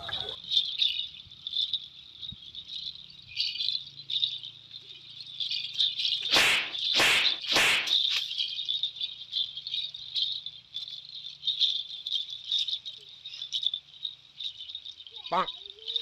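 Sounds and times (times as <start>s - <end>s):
small bells jingling: 0.0s - 7.0s, 7.8s - 16.0s
broom swishes: 6.2s - 8.3s.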